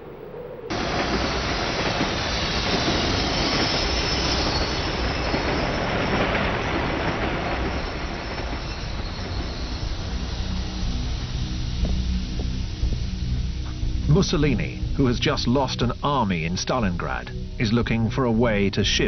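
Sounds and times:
loud rushing noise: 0.7 - 15.8.

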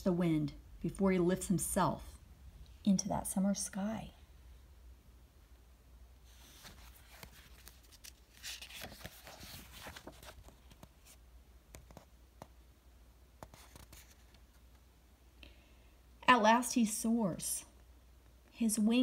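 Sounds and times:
book page turning: 6.3 - 12.1, 13.4 - 14.6.

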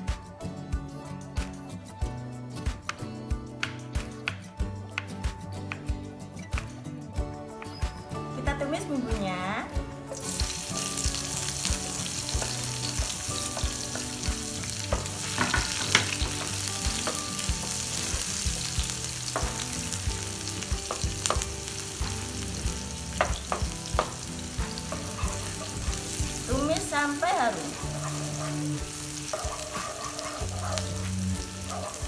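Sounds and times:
shallots sizzling in hot oil: 8.5 - 32.0.

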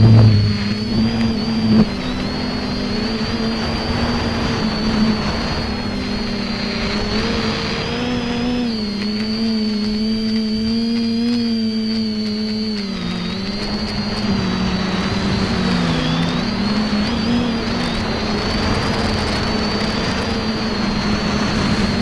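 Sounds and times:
drone motors humming: 0.0 - 22.0.

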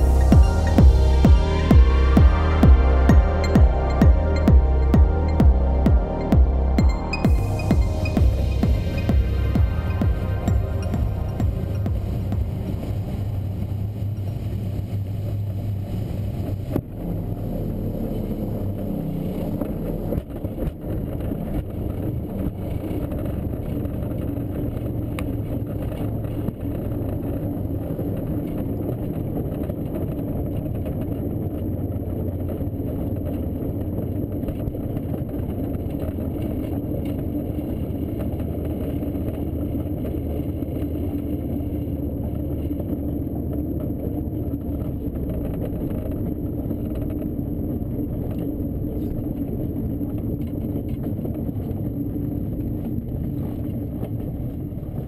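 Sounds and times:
airflow and rumble in glider cockpit: 0.0 - 55.0.

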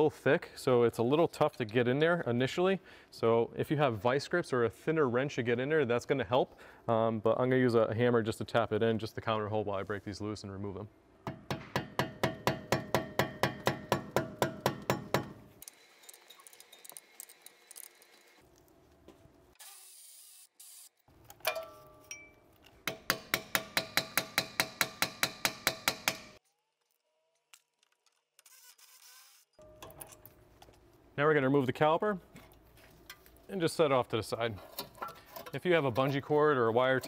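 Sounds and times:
ringing metal clink: 21.5 - 22.4.

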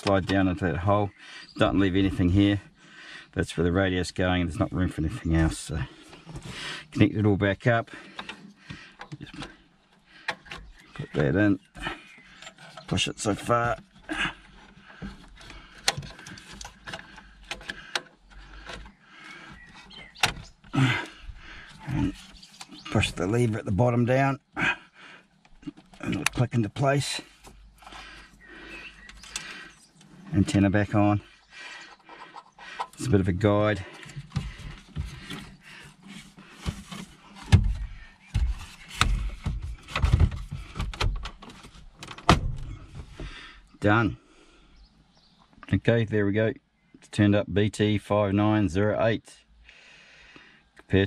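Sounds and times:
metal case sliding and scraping: 11.6 - 20.7, 31.8 - 43.3
sharp clicks and knocks: 11.7 - 23.1.

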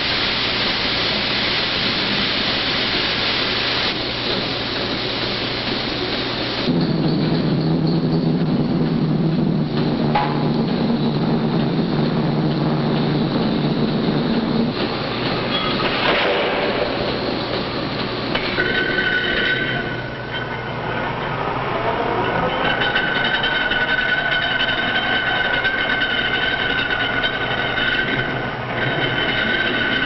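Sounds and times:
machinery low hum: 0.0 - 30.0
high metallic squeal: 18.5 - 21.3, 21.9 - 30.0.

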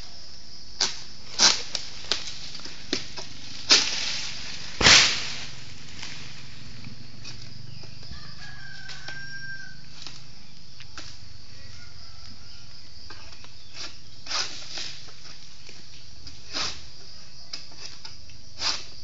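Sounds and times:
sickle hacking palm fronds: 0.8 - 11.3, 13.1 - 19.0
rooster crowing: 7.6 - 10.1, 11.4 - 12.9.

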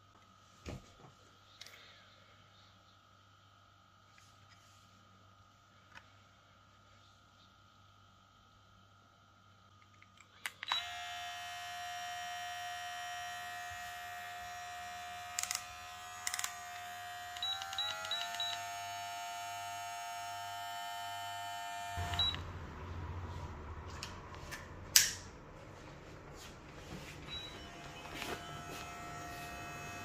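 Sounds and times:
hair clipper whining: 10.5 - 22.5, 27.4 - 30.0
rough buzz: 10.8 - 22.2, 27.6 - 30.0.

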